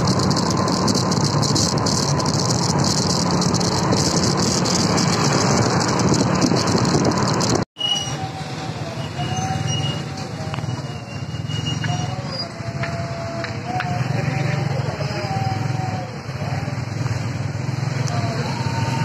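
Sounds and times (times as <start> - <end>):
rattling: 0.0 - 7.6
wind crackle on microphone: 0.0 - 7.6
slower traffic engine noise: 0.0 - 19.0
vehicle engine and road noise: 0.0 - 19.0.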